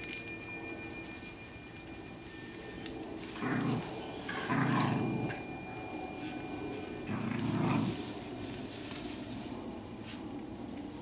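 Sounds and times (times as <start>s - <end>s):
dogs growling: 3.4s - 5.8s, 6.9s - 8.3s.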